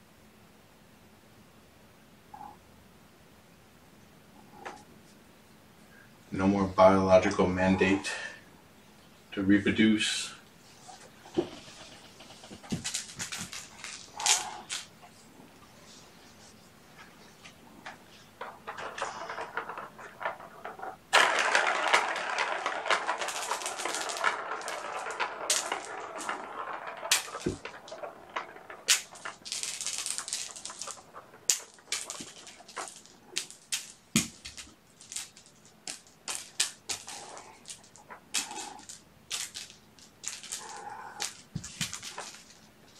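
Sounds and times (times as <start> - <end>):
plastic ball rattling in track: 10.8 - 15.0, 17.4 - 42.9.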